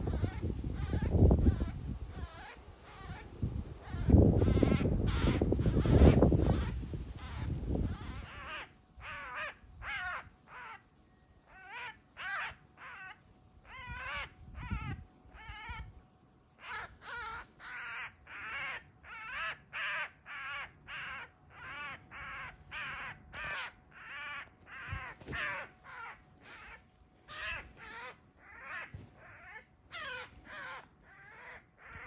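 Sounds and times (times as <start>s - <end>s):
magpie squawking harshly: 0.0s - 10.8s, 11.5s - 15.9s, 16.6s - 32.0s.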